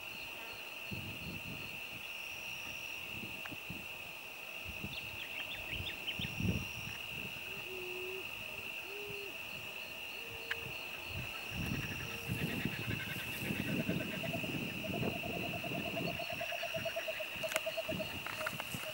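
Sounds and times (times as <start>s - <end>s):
high-pitched insect drone: 4.6s - 18.9s
low hooting calls: 7.4s - 9.4s.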